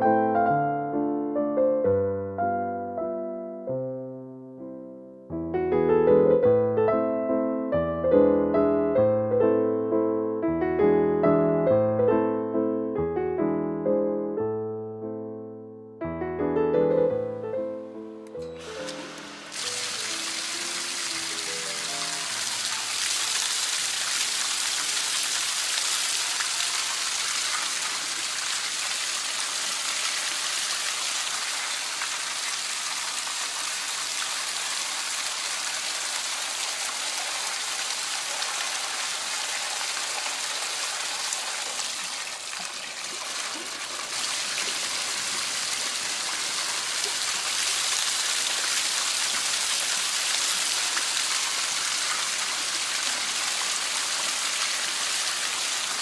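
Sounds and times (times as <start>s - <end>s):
water rushing onto rug: 18.6s - 56.0s.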